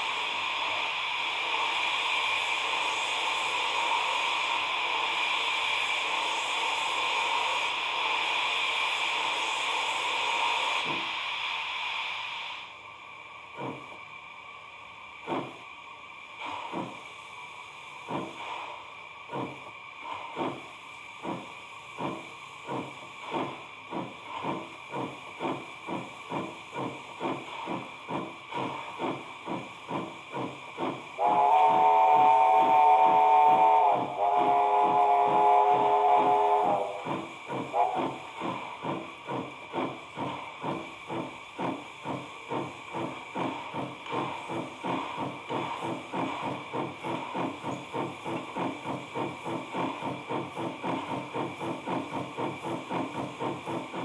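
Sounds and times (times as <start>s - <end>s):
steam hissing: 0.0s - 54.0s
steam locomotive chuffing: 0.0s - 54.0s
multi-tone train whistle: 31.2s - 38.3s.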